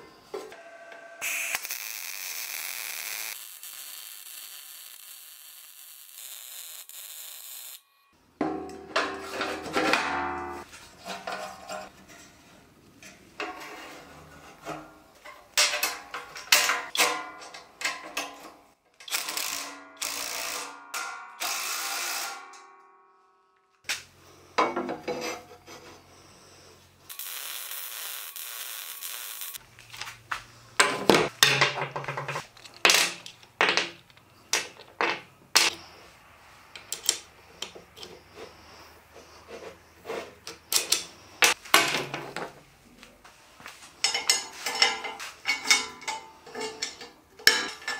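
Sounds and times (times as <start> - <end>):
steel parts clattering: 13.0 - 19.7, 30.8 - 35.9, 44.0 - 47.9.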